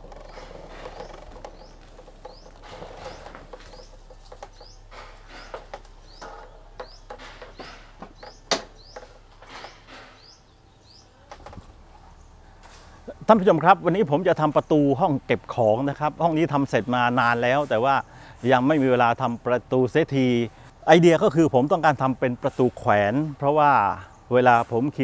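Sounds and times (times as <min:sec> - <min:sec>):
sharp clicks and knocks: 0:00.0 - 0:10.3
small bird chirping: 0:00.0 - 0:11.3.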